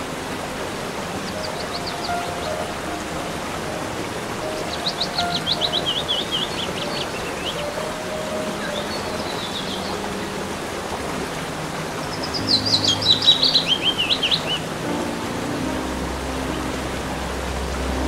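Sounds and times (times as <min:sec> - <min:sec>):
waterfall rushing: 0:00.0 - 0:18.0
songbird singing: 0:00.5 - 0:18.0.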